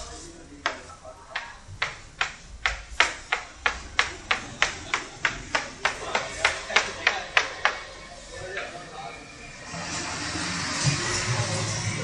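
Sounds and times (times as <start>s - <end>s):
sharp rhythmic knocks: 0.6s - 7.9s.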